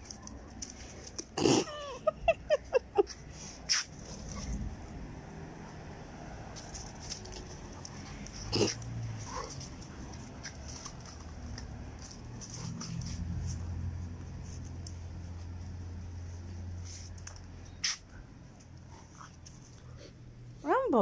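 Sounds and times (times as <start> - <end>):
dogs growling: 1.4 - 2.1, 8.2 - 9.7.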